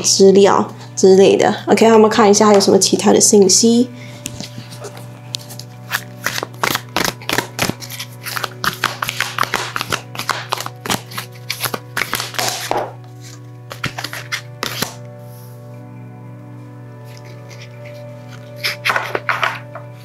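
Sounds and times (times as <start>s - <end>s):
background music: 0.0s - 20.0s
cards shuffling: 4.2s - 15.0s, 17.1s - 19.9s.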